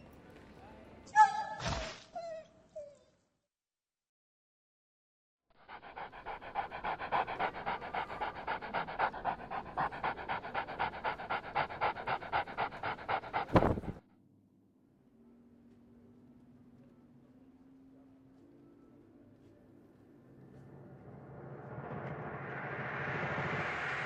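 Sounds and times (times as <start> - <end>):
dog panting: 5.6 - 14.0.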